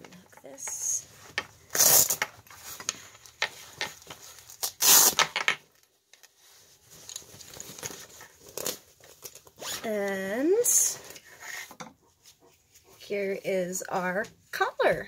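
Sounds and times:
fabric straps rustling: 0.5s - 11.6s
loud ripping tear: 1.7s - 2.3s, 4.6s - 5.4s.

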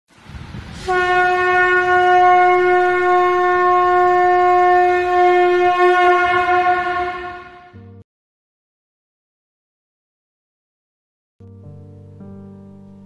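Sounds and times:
conch shell blown: 0.8s - 8.0s.

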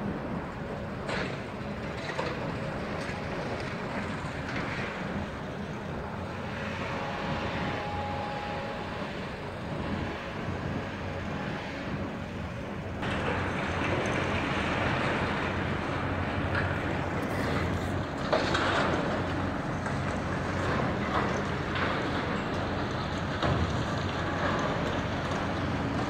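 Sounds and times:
excavator engine drone: 0.0s - 26.0s
thin whine: 6.3s - 13.0s.

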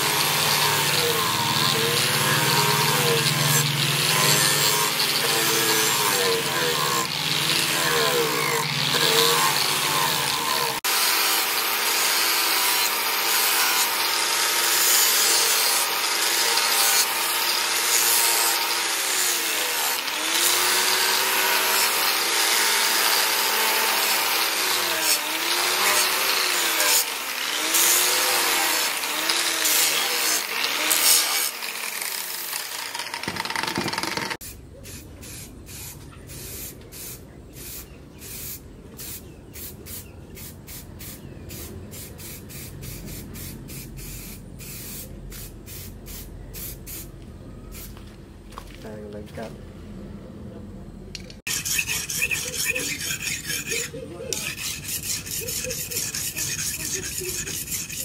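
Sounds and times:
angle grinder grinding steel: 0.0s - 34.5s, 51.5s - 58.0s
aerosol spray can hisses: 34.4s - 47.0s.

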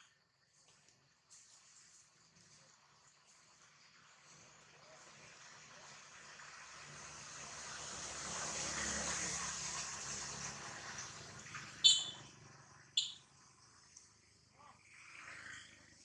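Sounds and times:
motor vehicle passing: 5.3s - 13.9s
high-pitched chirps: 11.8s - 12.2s, 13.0s - 13.2s.

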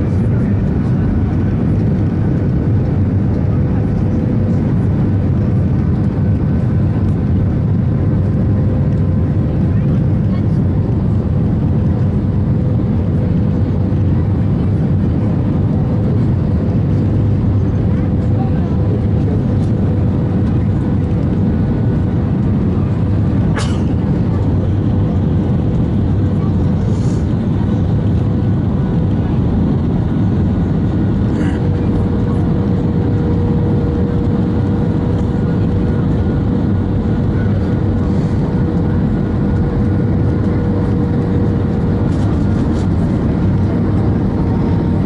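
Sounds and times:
airplane cabin engine rush: 0.0s - 45.0s.

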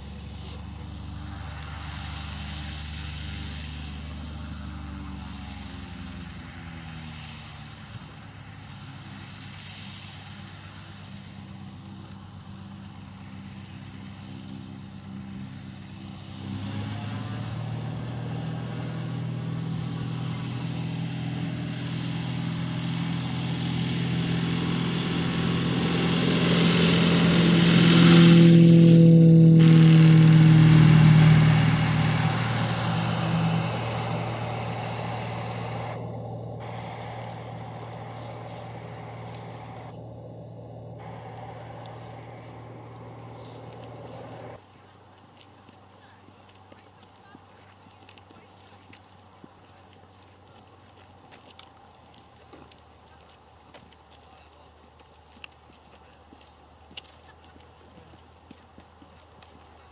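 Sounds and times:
propeller plane engine: 0.0s - 44.6s.

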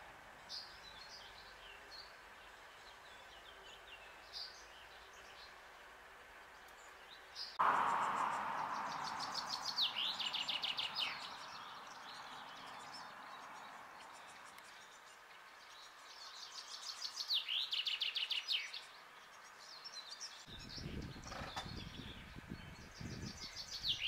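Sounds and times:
songbird singing: 0.0s - 24.0s
rushing noise: 7.6s - 11.4s.

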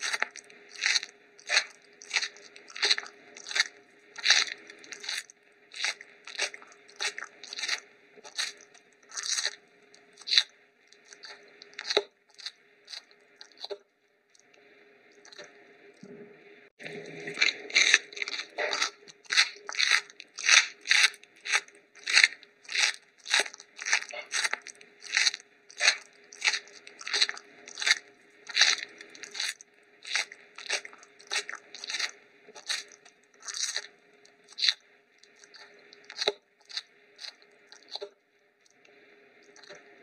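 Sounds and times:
rhythmic crunching: 0.0s - 13.8s, 16.8s - 33.9s.

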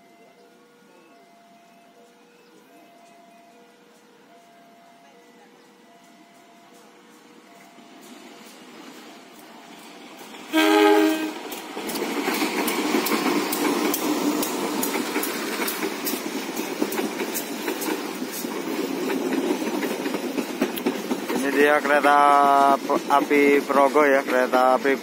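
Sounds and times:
train carriages rumbling past: 0.8s - 25.0s
wheels clacking over rail joints: 7.5s - 25.0s
train horn blast: 10.5s - 11.6s.

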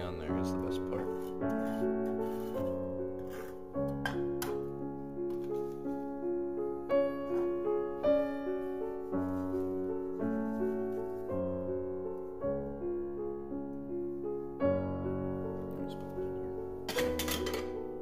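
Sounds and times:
slow piano music: 0.0s - 18.0s.

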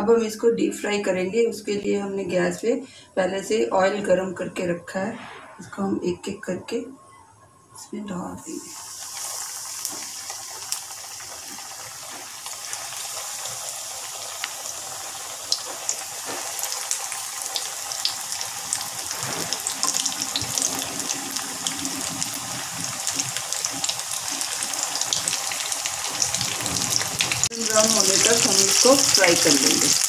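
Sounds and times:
patties sizzling in hot oil: 8.6s - 30.0s.

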